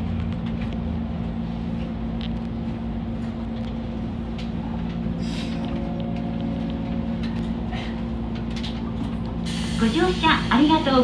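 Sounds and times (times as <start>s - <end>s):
electric train hum and rumble: 0.0s - 11.0s
air hiss: 9.4s - 10.6s.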